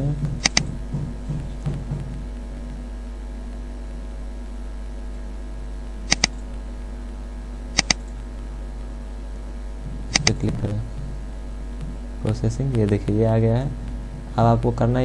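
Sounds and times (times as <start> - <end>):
electrical mains hum: 0.0 - 15.0
computer mouse double-clicks: 6.1 - 6.4, 7.8 - 8.1.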